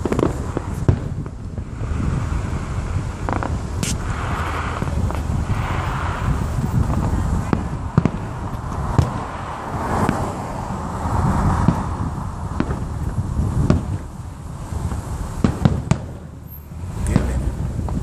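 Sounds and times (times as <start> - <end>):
fireworks bursting: 0.0 - 18.0
low rumble: 0.0 - 18.0.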